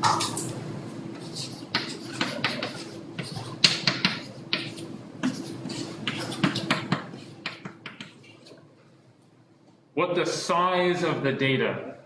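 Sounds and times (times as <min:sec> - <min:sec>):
chalk scratching on blackboard: 0:01.1 - 0:08.5.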